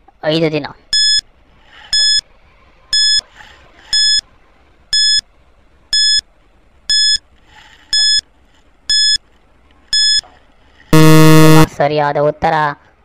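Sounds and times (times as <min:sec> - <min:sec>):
timer beeping: 0:00.9 - 0:01.2, 0:01.9 - 0:02.2, 0:02.9 - 0:03.2, 0:03.9 - 0:04.2, 0:04.9 - 0:05.2, 0:05.9 - 0:06.2, 0:06.9 - 0:07.2, 0:08.0 - 0:08.2, 0:08.9 - 0:09.2, 0:10.0 - 0:10.2, 0:11.0 - 0:11.7.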